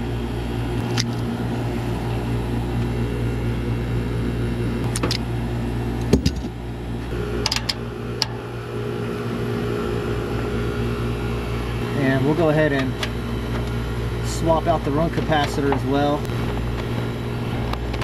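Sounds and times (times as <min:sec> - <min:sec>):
vacuum pump humming: 0:00.0 - 0:18.0.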